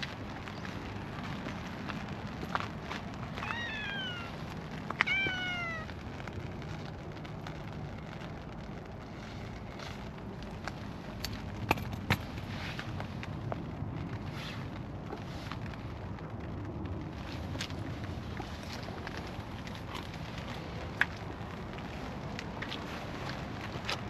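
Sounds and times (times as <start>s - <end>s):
cat meowing: 3.4s - 4.4s, 5.0s - 5.9s.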